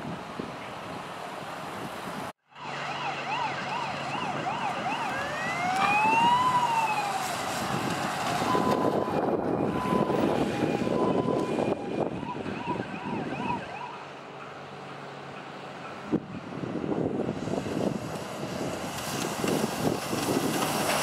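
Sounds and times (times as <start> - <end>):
wind rumbling on microphone: 0.0 - 2.3, 3.3 - 13.9, 16.0 - 21.0
passing traffic: 0.0 - 21.0
fire engine siren: 2.4 - 14.7.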